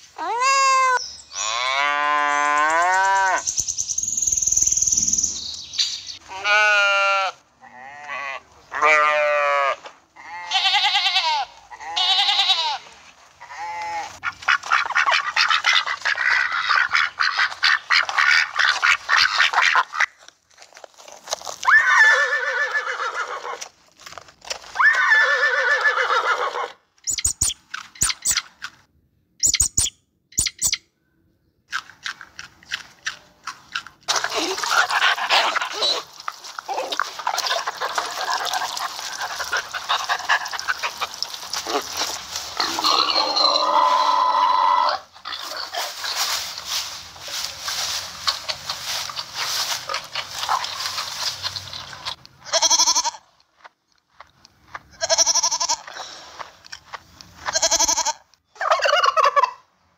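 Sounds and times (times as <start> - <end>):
wavering bleat-like calls: 0.2 - 3.4, 6.2 - 14.2, 42.5 - 46.3, 52.4 - 53.3, 55.0 - 56.0, 57.4 - 58.3
rabbit crunching chews: 31.7 - 42.9, 45.2 - 52.4.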